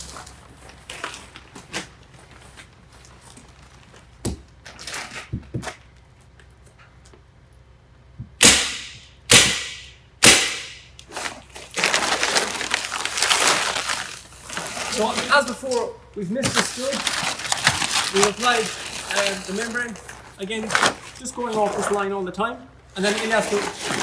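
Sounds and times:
plastic membrane crinkling: 11.0 - 22.1, 23.0 - 24.0.

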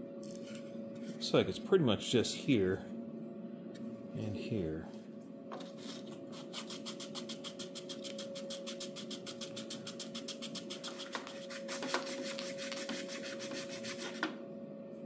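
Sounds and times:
steady hum: 0.0 - 15.0
hand file rasping: 5.8 - 14.2.

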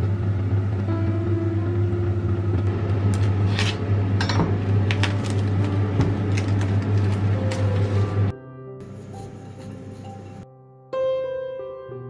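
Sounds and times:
steady low hum: 0.0 - 10.4
plastic wrap crinkling: 4.8 - 8.3.

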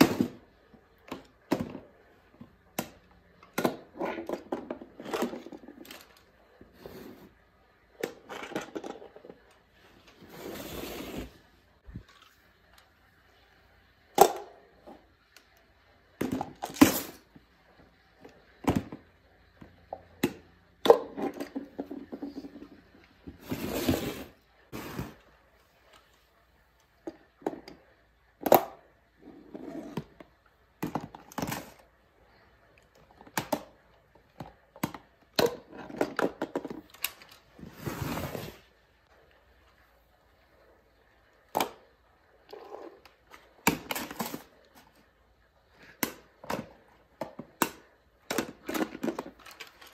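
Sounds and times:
contents rattling out: 48.3 - 49.9.

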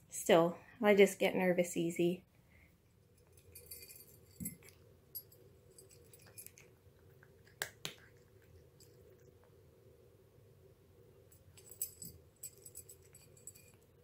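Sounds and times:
cat chewing food: 4.6 - 9.6.

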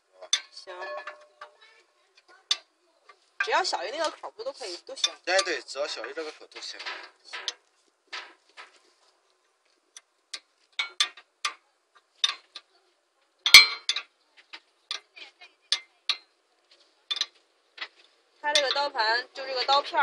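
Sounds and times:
wrench clinking against bolts: 13.4 - 14.1.

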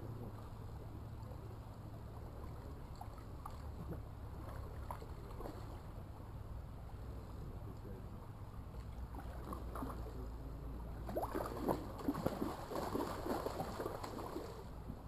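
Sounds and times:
fish thrashing and splashing: 11.0 - 14.6.

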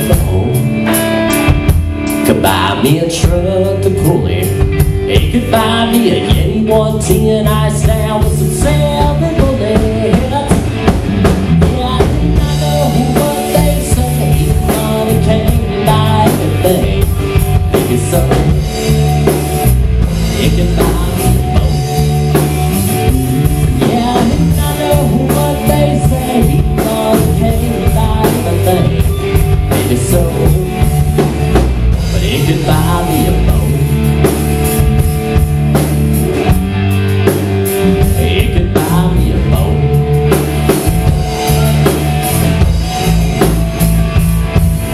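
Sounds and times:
live rock band playing: 0.0 - 44.9.

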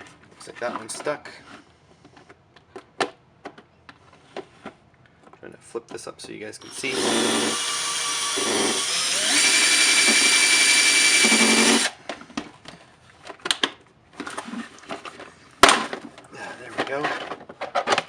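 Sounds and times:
cordless drill boring into plastic: 6.6 - 12.0.

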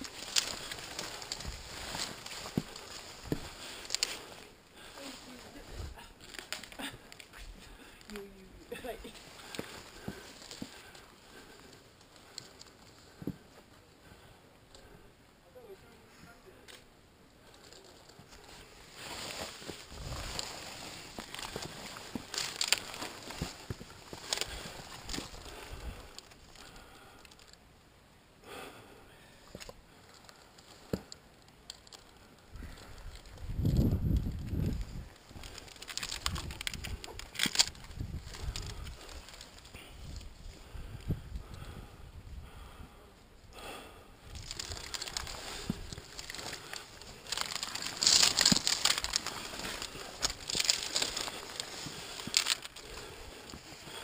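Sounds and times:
climbing gear clicking on rock: 0.0 - 4.4, 9.4 - 13.4, 19.6 - 27.6, 29.5 - 41.7, 44.3 - 54.0.

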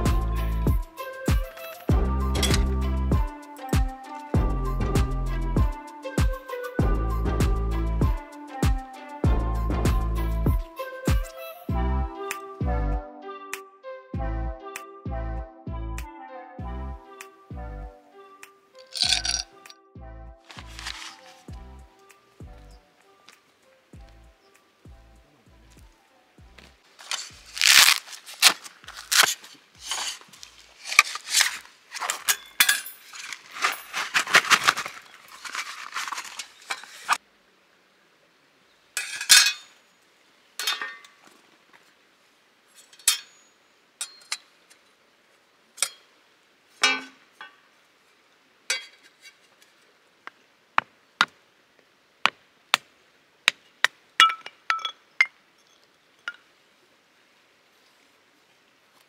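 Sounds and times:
metal plates clinking and clattering: 18.8 - 19.5, 30.9 - 37.2, 39.0 - 39.8, 40.6 - 41.2, 42.8 - 44.5, 46.8 - 47.6, 48.7 - 49.4.

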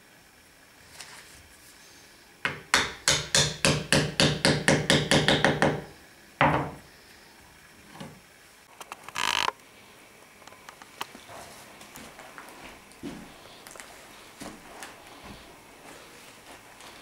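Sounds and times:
hammer tapping plane blade: 2.5 - 5.9.

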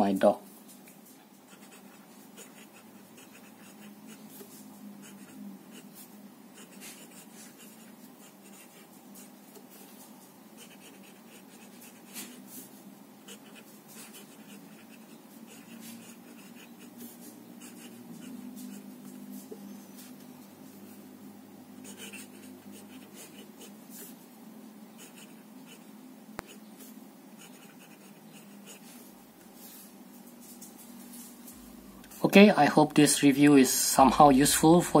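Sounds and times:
fountain pen scratching on paper: 1.4 - 10.0, 10.6 - 19.1, 21.8 - 24.2, 25.0 - 29.1.

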